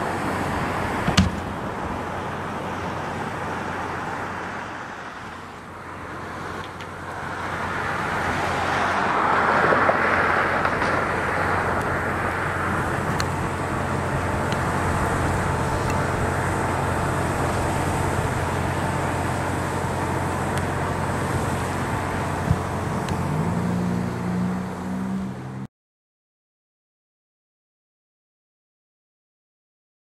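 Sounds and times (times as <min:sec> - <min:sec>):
low engine hum: 0:00.0 - 0:25.7
passing road traffic: 0:00.0 - 0:25.7
engine rising in pitch: 0:05.9 - 0:25.7.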